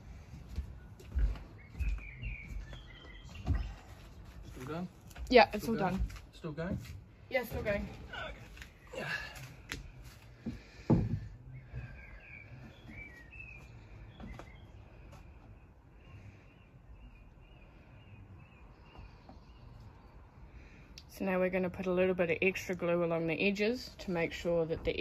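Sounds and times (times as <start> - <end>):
birds chirping: 0.0 - 25.0
knocks: 10.5 - 11.9.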